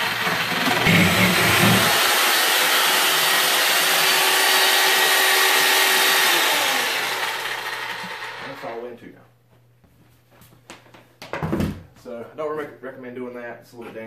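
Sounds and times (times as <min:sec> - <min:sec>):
reciprocating saw cutting wood: 0:00.0 - 0:08.7.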